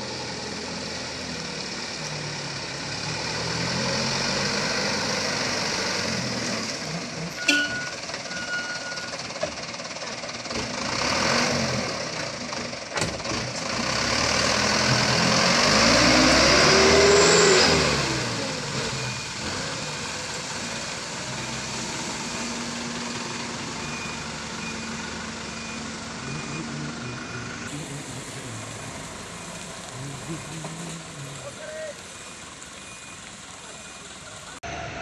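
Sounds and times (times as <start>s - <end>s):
diesel truck engine pulling away: 0.0s - 35.0s.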